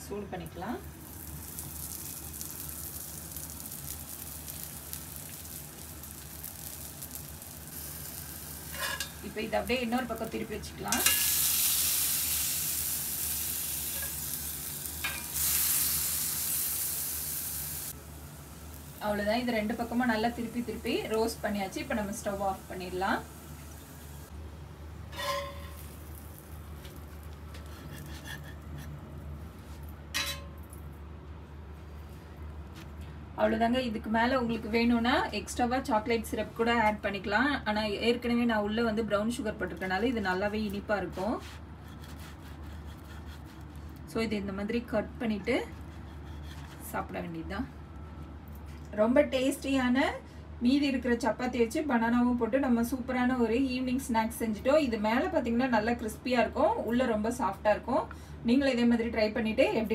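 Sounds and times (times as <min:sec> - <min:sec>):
butter sizzling in a pan: 0:01.0 - 0:24.3
metal spatula clinking on cookware: 0:08.7 - 0:09.2, 0:10.9 - 0:11.4, 0:25.1 - 0:25.9, 0:30.1 - 0:30.6.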